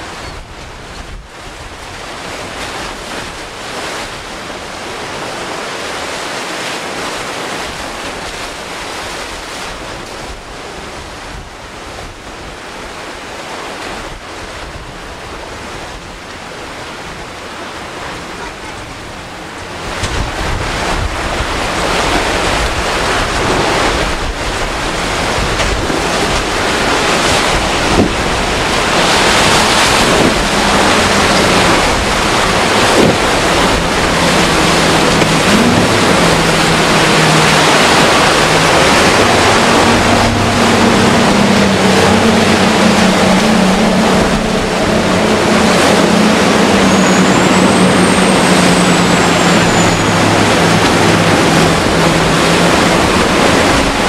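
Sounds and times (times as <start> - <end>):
surf and choppy water: 0.0 - 54.0
wind buffeting microphone: 18.1 - 54.0.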